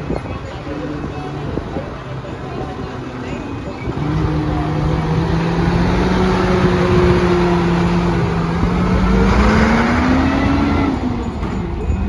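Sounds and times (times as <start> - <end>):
bus engine running: 0.0 - 12.0.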